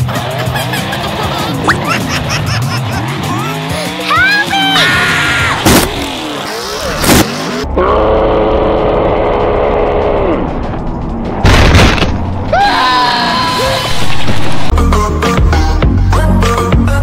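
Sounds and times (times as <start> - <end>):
squeaky rising glides: 12.3 - 14.7.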